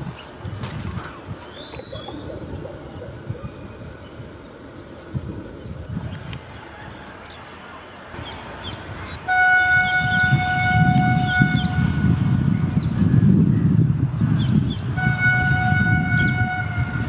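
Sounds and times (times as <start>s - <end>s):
train rumbling: 0.0s - 17.0s
train horn: 9.0s - 12.9s, 14.2s - 17.0s.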